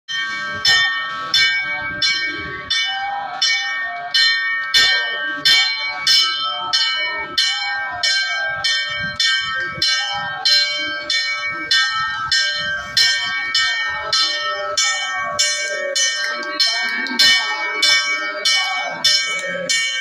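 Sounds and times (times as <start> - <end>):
brass bell ringing: 0.1 - 20.0
voices: 0.1 - 20.0.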